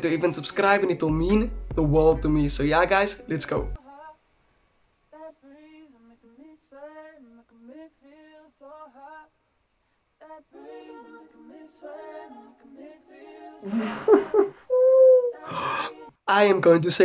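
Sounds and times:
person singing quietly: 10.2 - 16.2
second singing voice: 10.2 - 16.2.

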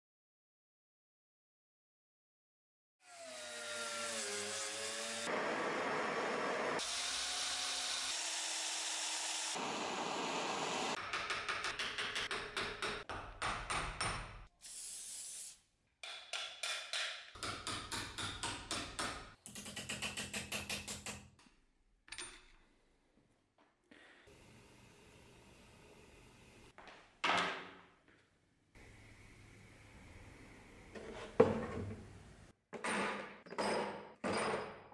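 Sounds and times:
cordless drill boring steel: 3.2 - 11.0.

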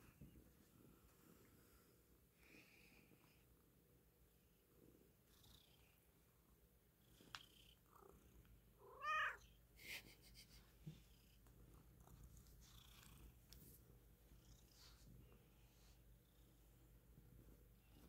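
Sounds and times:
cat purring faintly: 0.0 - 18.0
cat meowing: 8.8 - 9.4.

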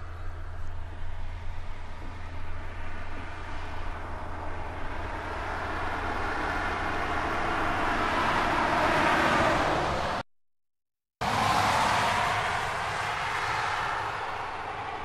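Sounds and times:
car driving past: 11.2 - 15.0.

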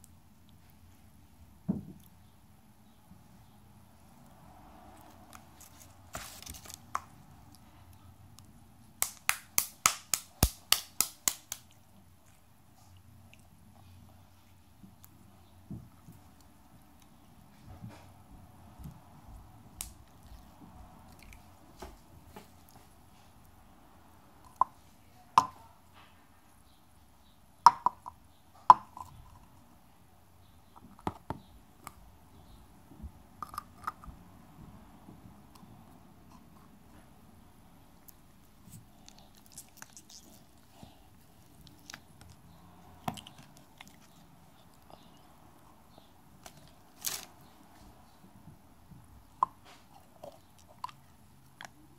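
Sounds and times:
sharp wet pops: 9.0 - 11.8.

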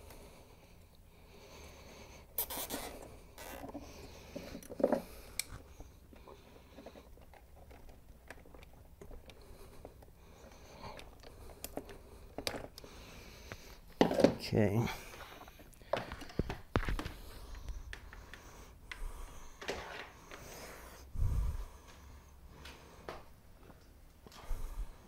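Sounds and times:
zip tie fastening: 2.4 - 3.7
small clicks and rustles: 2.5 - 14.1, 15.1 - 20.5.

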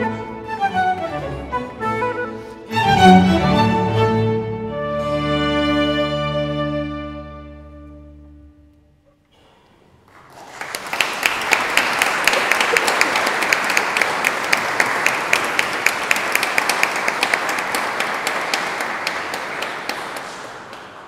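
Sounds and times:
audience applauding: 9.8 - 21.0.

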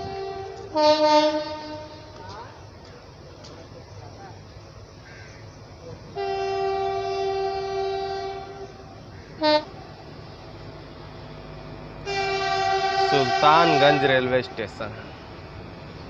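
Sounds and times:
train horn blasts: 0.0 - 2.4, 6.1 - 9.8, 12.0 - 15.4
moving train rumble: 0.0 - 16.0.

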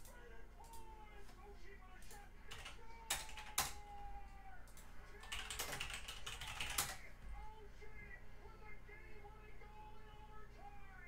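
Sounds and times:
rapid clicking and clatter: 5.2 - 7.0.

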